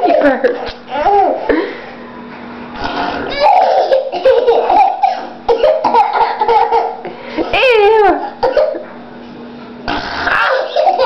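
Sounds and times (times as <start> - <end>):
toddler laughing: 0.0 - 1.6, 3.2 - 7.1, 10.2 - 11.0.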